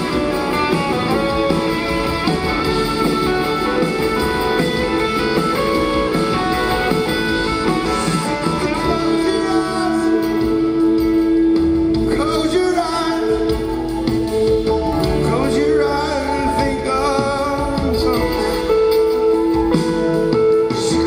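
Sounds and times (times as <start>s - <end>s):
live rock band playing: 0.0s - 21.0s
man singing: 7.8s - 11.3s, 12.0s - 13.9s, 15.0s - 19.3s, 20.6s - 21.0s.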